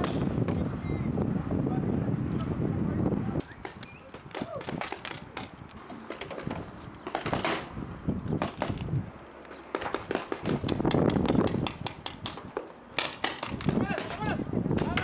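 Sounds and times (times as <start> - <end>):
paintball markers firing: 3.5 - 7.7, 8.4 - 8.9, 9.5 - 14.2.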